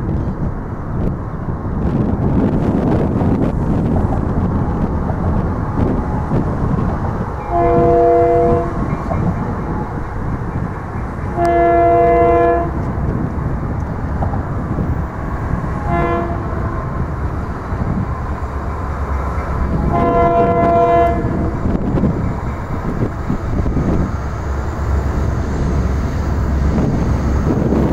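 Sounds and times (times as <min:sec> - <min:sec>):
train air horn blasts: 0:07.4 - 0:08.9, 0:11.3 - 0:12.8, 0:15.8 - 0:16.6, 0:19.8 - 0:21.6.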